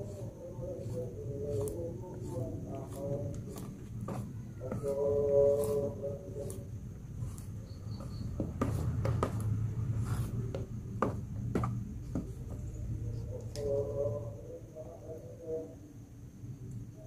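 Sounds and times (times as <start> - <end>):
spatula stirring thick batter: 0.0 - 12.7
scraping knocks against plastic tub: 8.0 - 9.5, 10.5 - 12.6.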